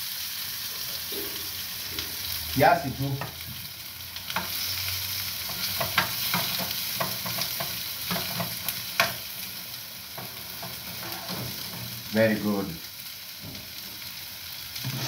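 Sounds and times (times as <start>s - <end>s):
onions sizzling in frying pan: 0.0s - 15.0s
metal spoon scraping pan: 10.2s - 11.9s, 14.8s - 15.0s.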